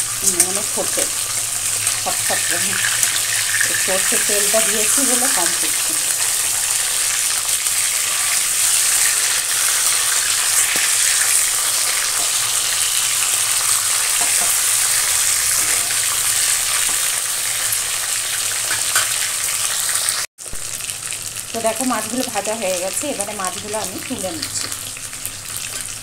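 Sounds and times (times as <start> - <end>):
spatula turning food in pan: 0.0 - 20.0
fish sizzling in hot oil: 0.0 - 26.0.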